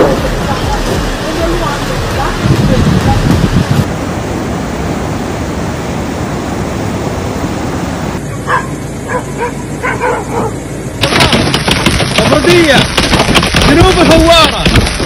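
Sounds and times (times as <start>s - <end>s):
clattering rush of noise: 0.0s - 3.9s, 11.0s - 15.0s
wind and rain: 0.0s - 8.3s, 11.0s - 15.0s
dogs yelping and barking: 8.2s - 10.6s.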